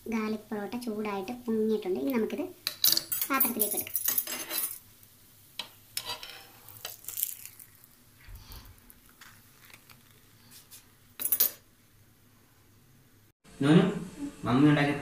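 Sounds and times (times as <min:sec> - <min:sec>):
metal spatula scraping pan: 0:06.0 - 0:06.8.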